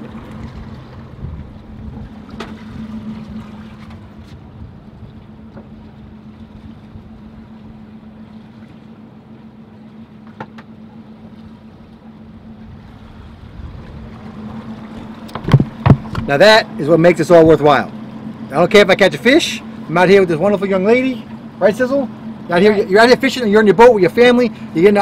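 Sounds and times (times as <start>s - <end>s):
boat motor humming: 0.0s - 25.0s.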